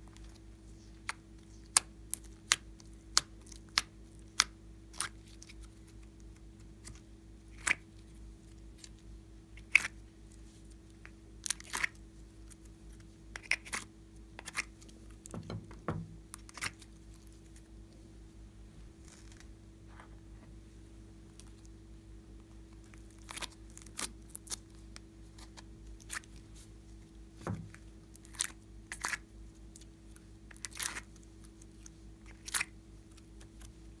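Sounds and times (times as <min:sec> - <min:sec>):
slime squishes: 0:00.1 - 0:17.7, 0:22.6 - 0:34.0
slime crackles: 0:30.5 - 0:33.8.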